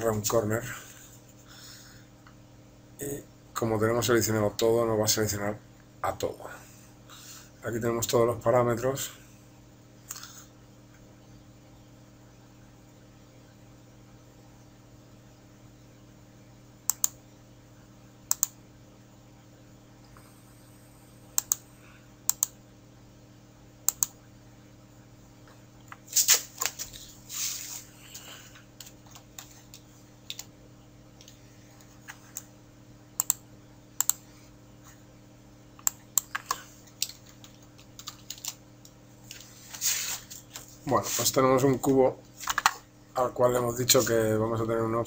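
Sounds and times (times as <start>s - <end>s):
mouse clicks: 16.9s - 17.2s, 18.3s - 18.6s, 21.4s - 21.6s, 22.3s - 22.6s, 23.9s - 24.2s, 33.2s - 33.4s, 34.0s - 34.2s
keyboard typing: 28.8s - 30.5s, 35.8s - 39.0s.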